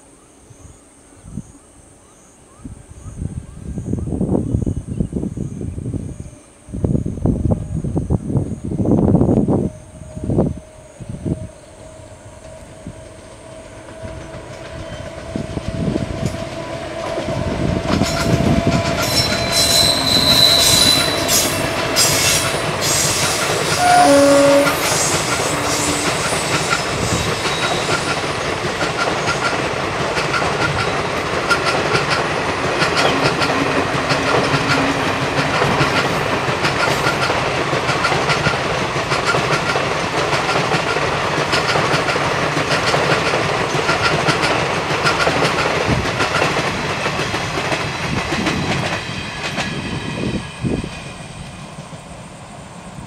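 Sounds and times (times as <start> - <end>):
train horn: 9.4 - 28.2
train wheels clattering over rail joints: 13.1 - 51.1.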